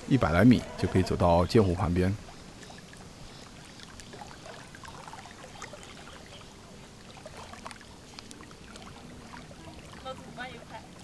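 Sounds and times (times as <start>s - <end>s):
small waves lapping: 0.0s - 11.0s.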